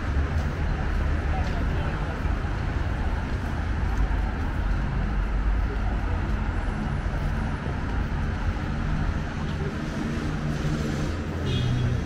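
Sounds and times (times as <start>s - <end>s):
vehicle engines rumbling: 0.0s - 12.0s.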